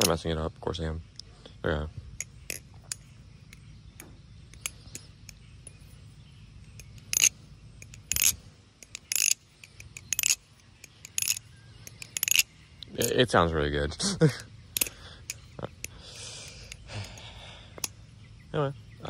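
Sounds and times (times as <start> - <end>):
metal knife handles clacking: 0.0 - 0.3, 2.2 - 6.0, 6.6 - 13.6.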